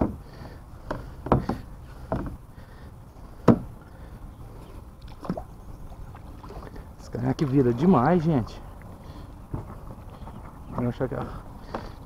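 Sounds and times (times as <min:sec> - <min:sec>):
knocks against a kayak: 0:00.9 - 0:02.4, 0:03.4 - 0:03.7.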